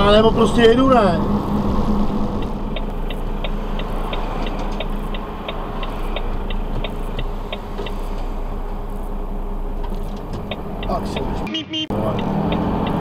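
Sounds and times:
engine humming: 0:00.0 - 0:13.0
turn signal ticking: 0:00.0 - 0:13.0.

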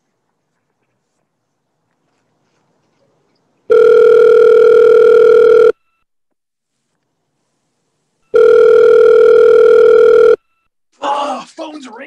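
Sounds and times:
telephone ringback tone: 0:03.7 - 0:06.0, 0:08.2 - 0:10.7.

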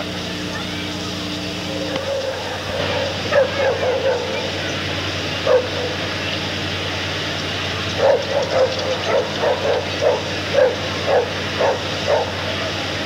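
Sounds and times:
steady low hum: 0:00.0 - 0:13.0
dog barking: 0:01.9 - 0:04.6, 0:05.4 - 0:06.0, 0:08.0 - 0:12.6.

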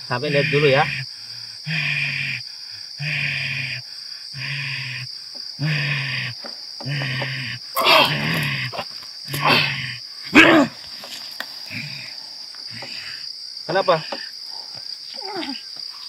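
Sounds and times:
man growling: 0:00.0 - 0:02.4, 0:03.0 - 0:10.8, 0:11.7 - 0:14.2
crickets trilling: 0:00.0 - 0:16.0
man roaring cries: 0:05.6 - 0:10.8.

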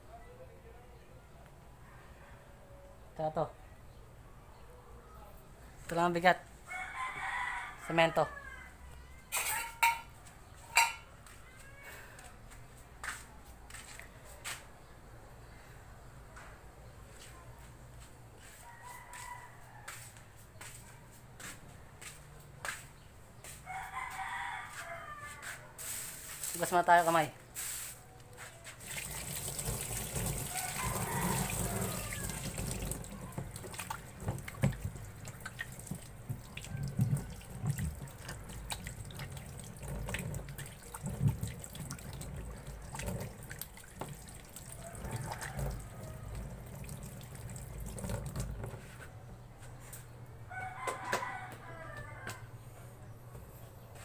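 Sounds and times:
rooster crowing: 0:06.6 - 0:09.2, 0:18.4 - 0:20.3, 0:23.4 - 0:26.0, 0:30.1 - 0:34.2, 0:44.2 - 0:47.5, 0:50.5 - 0:52.9
hands splashing water: 0:28.8 - 0:48.6
water running from sink tap: 0:28.8 - 0:48.8.

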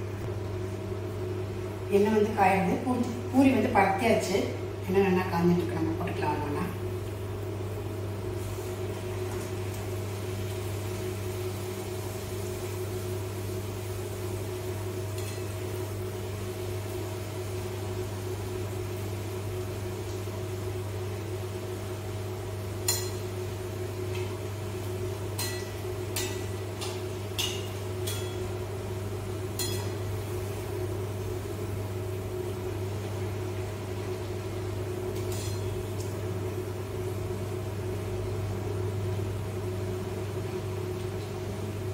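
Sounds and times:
food deep-frying in oil: 0:00.0 - 0:41.9
steady low hum: 0:00.0 - 0:41.9
metal spoon clinking on pan: 0:22.9 - 0:23.2, 0:25.4 - 0:28.4, 0:29.6 - 0:30.0.

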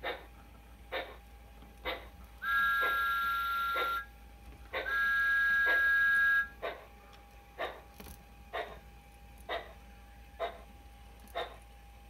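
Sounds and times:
two-tone steam whistle: 0:02.4 - 0:04.1, 0:04.8 - 0:06.7.

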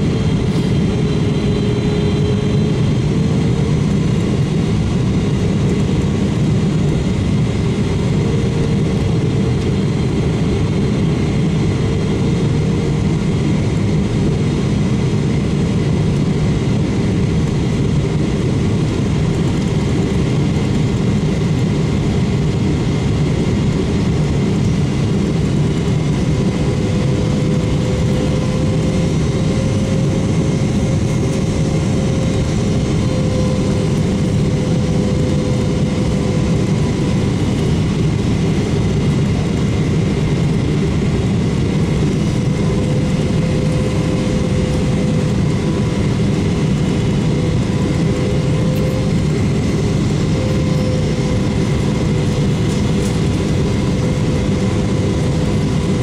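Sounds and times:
airplane cabin roar: 0:00.0 - 0:56.0.

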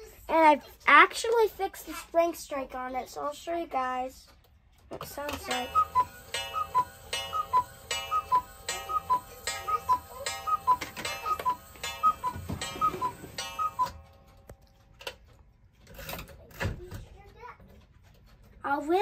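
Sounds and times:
cuckoo clock call: 0:05.3 - 0:14.5.

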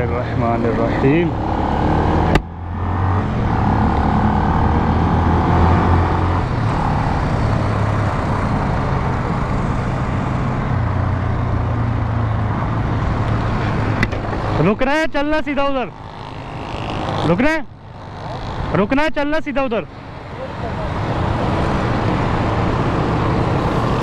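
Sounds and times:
road and wind noise: 0:00.0 - 0:24.0
motorcycle engine running: 0:05.7 - 0:19.1.

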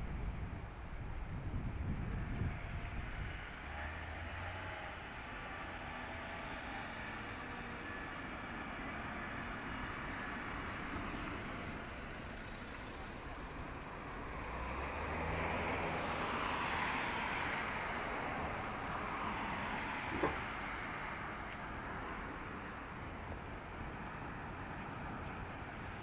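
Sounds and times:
traffic noise: 0:00.0 - 0:26.0
vehicle passing: 0:09.8 - 0:21.5.

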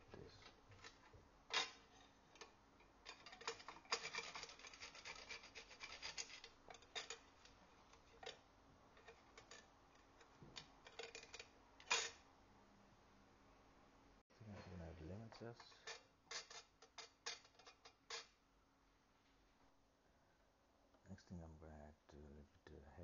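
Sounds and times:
nutmeg rasping on metal grater: 0:03.1 - 0:07.3.

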